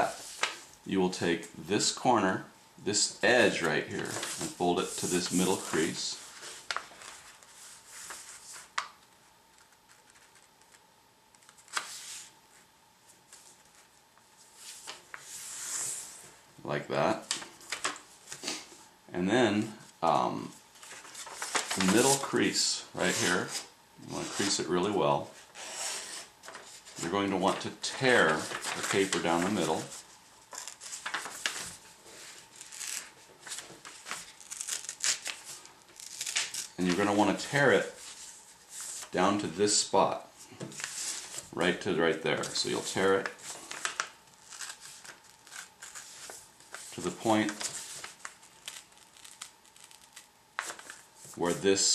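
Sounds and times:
faint steady hum: 0:00.0 - 0:51.9
paper rustling and crinkling: 0:00.1 - 0:00.7, 0:03.6 - 0:16.3, 0:17.2 - 0:18.7, 0:20.7 - 0:22.4, 0:25.3 - 0:39.2, 0:40.4 - 0:41.6, 0:42.4 - 0:51.6.

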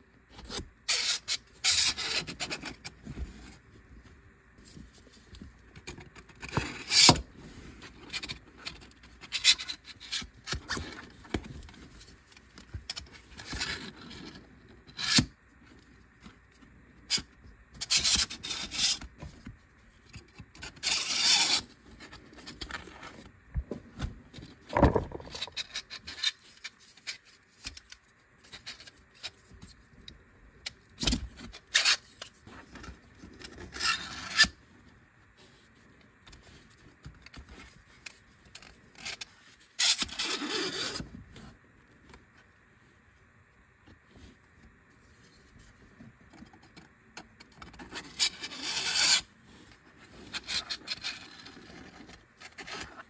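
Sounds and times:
plastic pieces rubbing and scraping: 0:20.1 - 0:23.3, 0:24.3 - 0:29.8
plastic clicks and knocks: 0:24.7 - 0:25.6.

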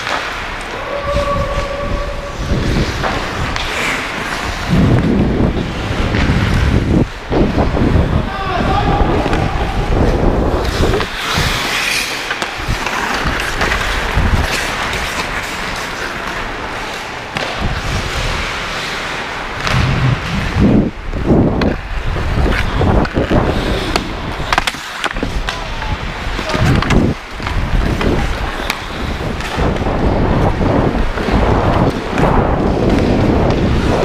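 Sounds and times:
skates scraping ice: 0:00.0 - 0:34.0
stick hitting puck: 0:10.8 - 0:18.0, 0:22.4 - 0:25.6, 0:26.4 - 0:29.8.

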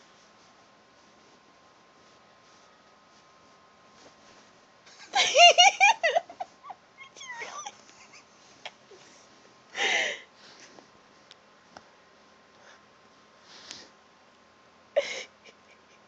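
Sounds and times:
bedding rustling: 0:00.0 - 0:06.7
person giggling: 0:04.9 - 0:08.8, 0:15.0 - 0:16.0.

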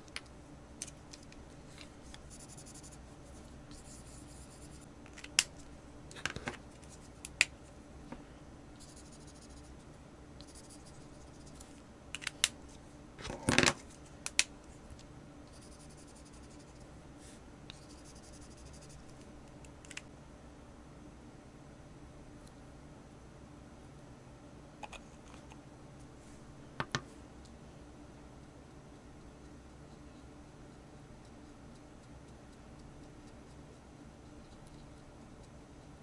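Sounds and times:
marker scratching on plastic: 0:03.7 - 0:04.8.

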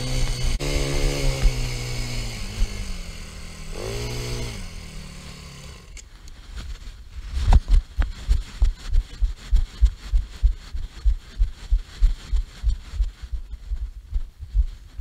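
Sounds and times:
quad bike engine running: 0:00.0 - 0:06.0.

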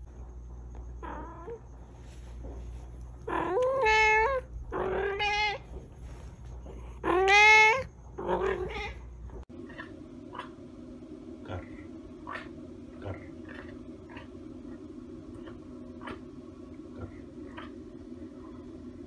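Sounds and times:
cat meowing: 0:07.0 - 0:09.0.

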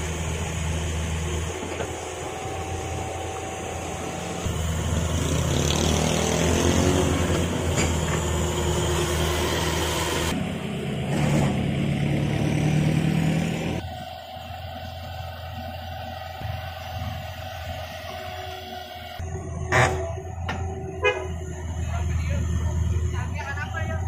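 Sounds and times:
wavering whine: 0:00.0 - 0:06.5, 0:13.6 - 0:24.0
excavator diesel engine running: 0:00.0 - 0:24.0.

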